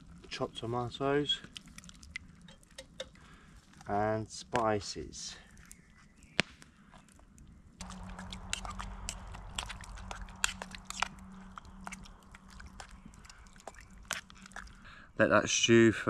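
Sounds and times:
wood fire crackling and popping: 6.3 - 15.0.

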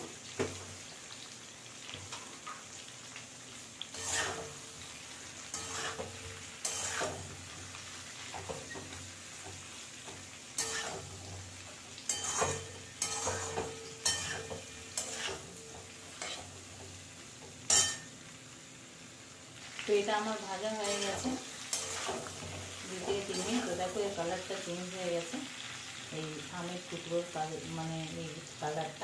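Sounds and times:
faint sizzle: 0.0 - 29.0
steel spoon scraping pan: 3.9 - 4.6, 5.5 - 7.2, 10.6 - 11.1, 12.1 - 16.5, 17.7 - 18.1, 20.8 - 23.8.

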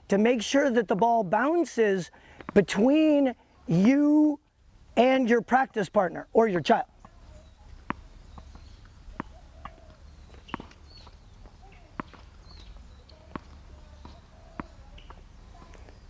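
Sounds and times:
faint bird chirps: 6.2 - 16.0
tennis ball bouncing on court: 7.0 - 15.7.

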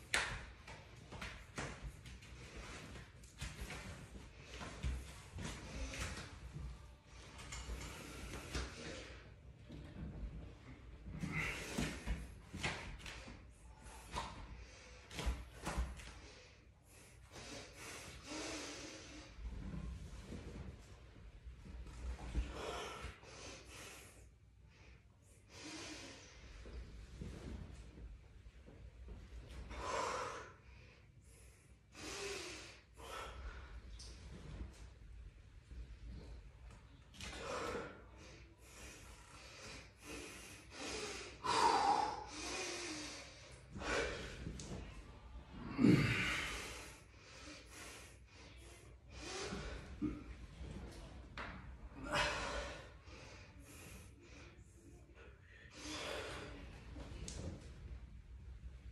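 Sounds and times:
man breathing hard: 7.1 - 19.8, 22.4 - 26.8, 29.7 - 34.0, 37.2 - 44.8, 45.7 - 50.4, 52.0 - 54.7, 55.5 - 56.8.

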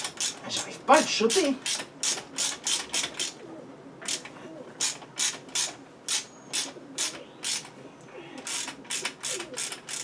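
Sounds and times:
ratchet wrench clicking: 0.0 - 0.4, 1.3 - 3.3, 4.1 - 7.7, 8.4 - 10.0.

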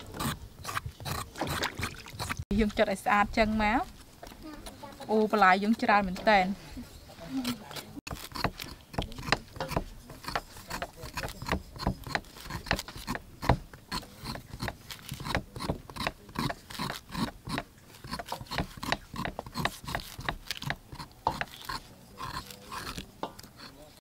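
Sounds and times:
knife scraping pineapple: 0.0 - 2.4, 7.3 - 24.0.

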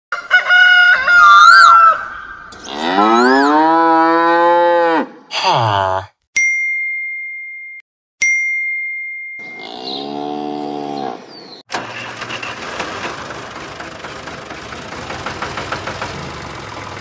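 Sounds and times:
cattle mooing: 2.5 - 6.1, 9.6 - 11.3
bell ringing: 6.4 - 9.7.

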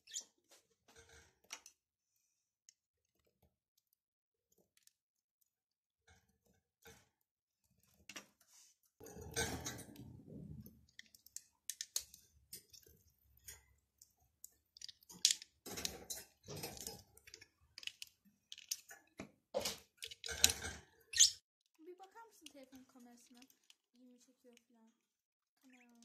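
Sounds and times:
plastic bricks clicking together: 10.6 - 12.7, 14.4 - 20.8
plastic bricks handling noise: 10.6 - 20.9, 21.7 - 24.9.

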